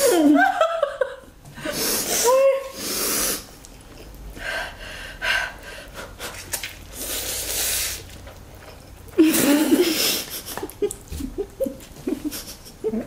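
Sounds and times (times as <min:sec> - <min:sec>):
people slurping noodles: 0:01.6 - 0:03.7, 0:06.3 - 0:11.3.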